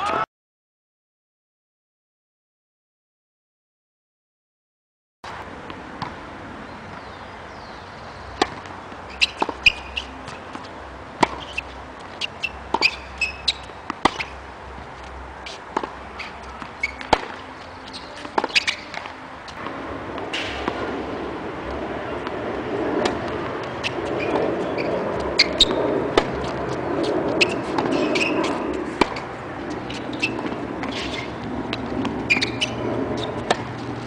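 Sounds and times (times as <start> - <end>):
tennis ball bouncing on court: 5.6 - 6.2, 8.2 - 21.0, 23.0 - 34.0
tennis ball hit by racket: 8.3 - 14.4, 15.0 - 20.8, 23.0 - 34.0.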